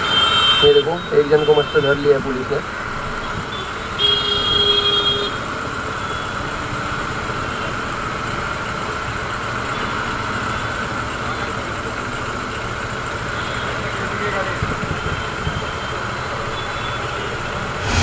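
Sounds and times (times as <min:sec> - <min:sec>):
vehicle horn: 0:00.0 - 0:02.2, 0:03.2 - 0:05.4
motorcycles idling: 0:05.2 - 0:17.8.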